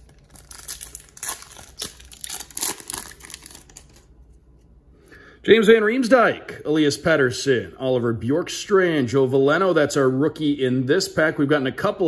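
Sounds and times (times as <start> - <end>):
foil wrapper crinkling and tearing: 0.0 - 4.1.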